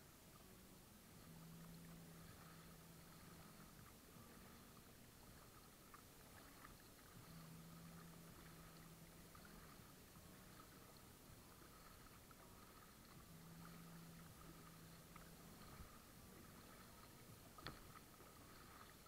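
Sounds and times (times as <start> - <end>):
faint low hum: 0.0 - 19.0
water lapping against hull: 0.0 - 19.0
small ticks: 16.7 - 19.0.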